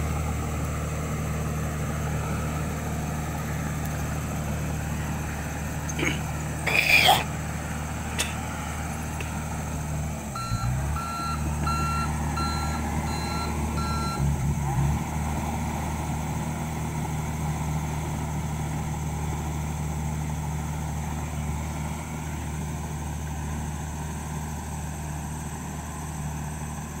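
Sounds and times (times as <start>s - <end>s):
bulldozer diesel engine running: 0.0s - 27.0s
backup alarm beeping: 10.4s - 14.2s.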